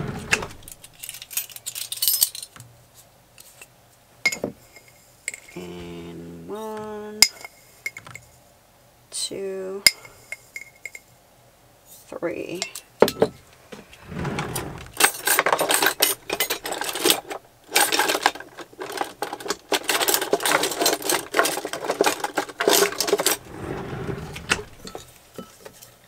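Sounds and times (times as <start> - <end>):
utensils and jars clattering in drawer: 13.1 - 26.0.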